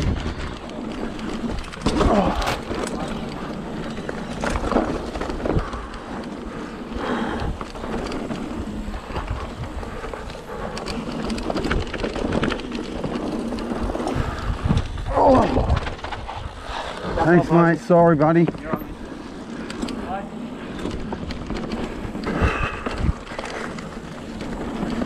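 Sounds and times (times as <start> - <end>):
wind on microphone: 0.0 - 2.6, 7.1 - 17.4, 20.4 - 25.0
bike knocking over bumps: 0.0 - 6.3
tyres rolling over dirt: 0.0 - 25.0.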